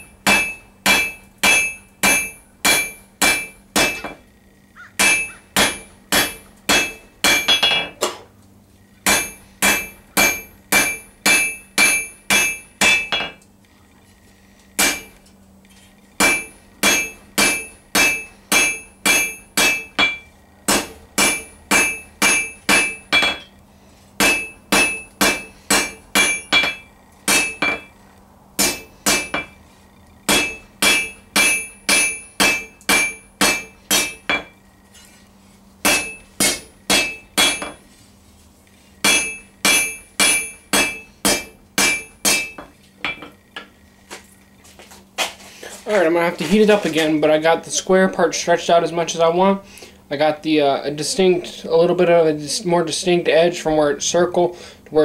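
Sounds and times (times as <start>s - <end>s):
hammer ringing on steel anvil: 0.0s - 4.2s, 5.0s - 8.0s, 9.0s - 13.4s, 14.8s - 15.2s, 16.2s - 23.5s, 24.2s - 28.0s, 28.6s - 29.6s, 30.3s - 34.6s, 35.8s - 37.8s, 39.0s - 43.3s.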